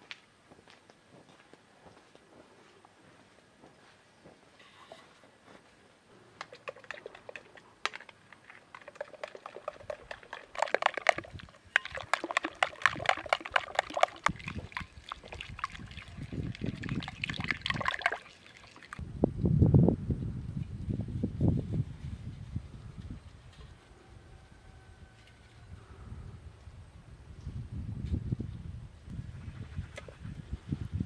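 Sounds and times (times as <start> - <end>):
liquid sloshing: 6.4 - 19.0.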